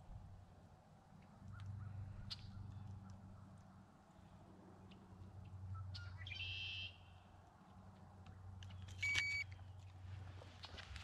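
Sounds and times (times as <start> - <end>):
bird chirp: 5.7 - 7.1.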